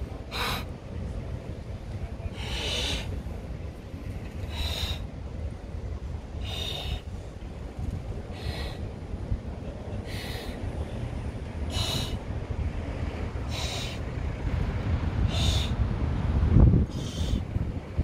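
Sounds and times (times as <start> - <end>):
steady low rumble: 0.0 - 18.0
person inhaling noisily: 2.4 - 3.1, 4.5 - 5.1, 6.4 - 7.1, 8.3 - 8.8, 10.1 - 10.6, 11.7 - 12.2, 13.5 - 14.0, 15.3 - 15.8.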